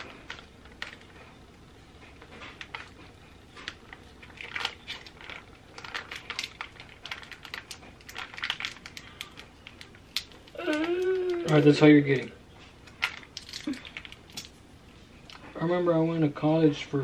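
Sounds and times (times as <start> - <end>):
plastic and foil crinkling: 2.0 - 14.6.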